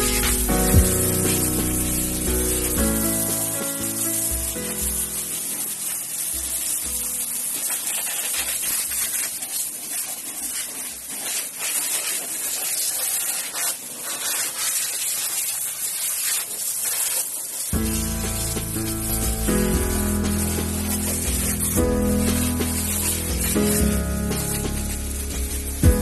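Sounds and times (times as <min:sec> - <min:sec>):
background music: 0:00.0 - 0:07.4, 0:17.8 - 0:26.0
spray nozzle hissing: 0:00.0 - 0:26.0.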